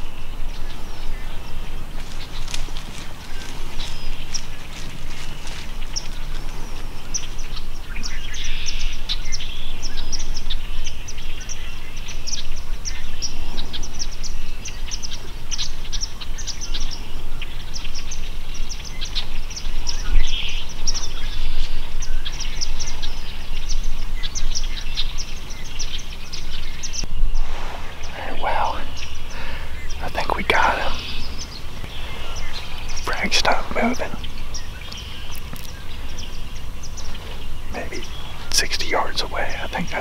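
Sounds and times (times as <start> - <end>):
small birds chirping: 0.0 - 40.0
steady low rumble: 27.0 - 40.0.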